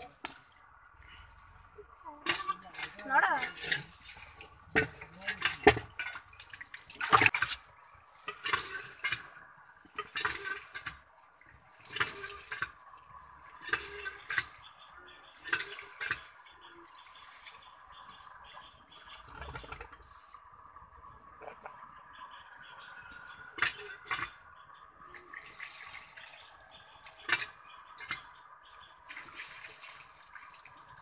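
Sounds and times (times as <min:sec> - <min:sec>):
fish splashing in metal basin: 0:02.2 - 0:14.7, 0:15.4 - 0:20.4, 0:23.5 - 0:28.3.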